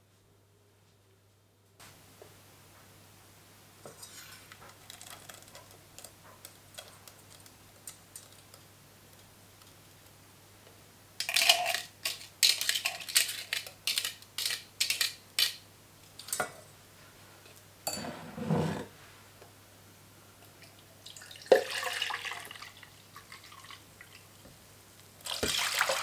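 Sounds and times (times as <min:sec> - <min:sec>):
spatula scraping and tapping: 0:03.8 - 0:07.2
berries sliding into saucepan: 0:17.9 - 0:19.0.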